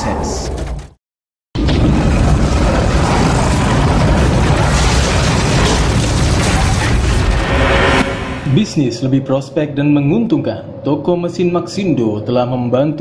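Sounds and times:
deep rumbling boom: 0:01.6 - 0:10.8.

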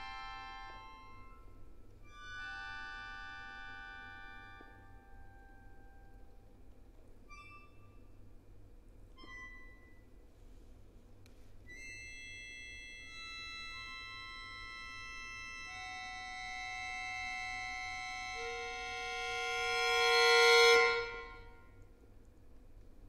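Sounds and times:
accordion sustained tones: 0:00.0 - 0:06.4, 0:11.6 - 0:21.8.

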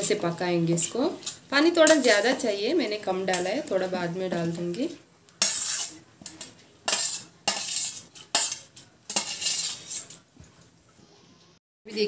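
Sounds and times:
metal spoon scraping steel bowl: 0:05.4 - 0:10.2.

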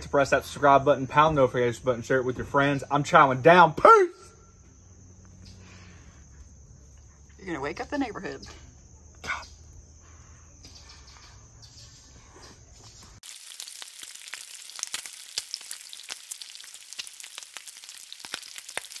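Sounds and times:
bacon sizzling and popping: 0:13.2 - 0:19.0.

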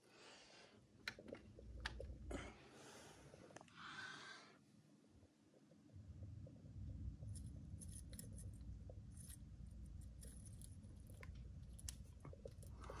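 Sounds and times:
low rumble: 0:05.9 - 0:13.0.

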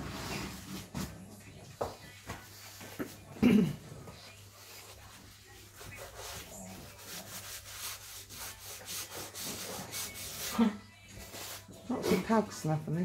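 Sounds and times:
pad rubbing on wooden board: 0:04.8 - 0:10.6.

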